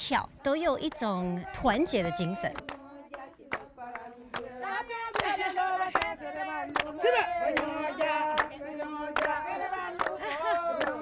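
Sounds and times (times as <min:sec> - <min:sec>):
women singing together: 0:00.3 - 0:11.0
hand claps: 0:02.5 - 0:11.0.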